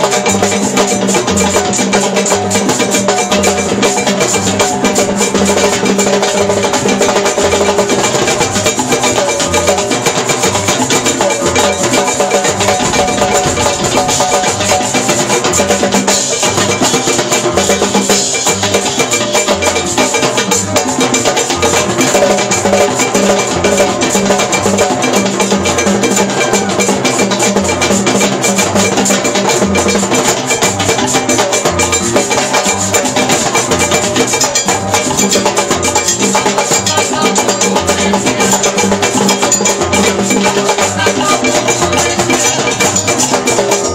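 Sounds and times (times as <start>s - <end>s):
congas and hand percussion: 0.0s - 43.9s
bass line: 2.4s - 20.0s, 30.7s - 43.9s.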